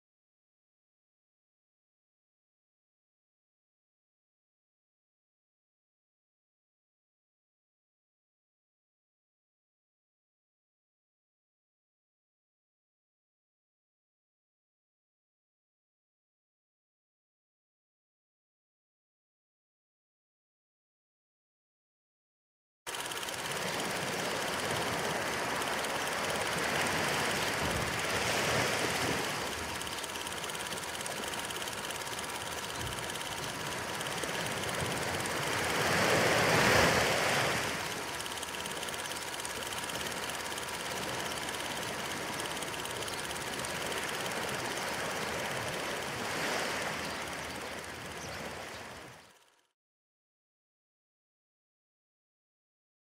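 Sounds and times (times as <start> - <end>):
thin hum: 22.9 - 49.5
film projector whirring clatter: 22.9 - 49.7.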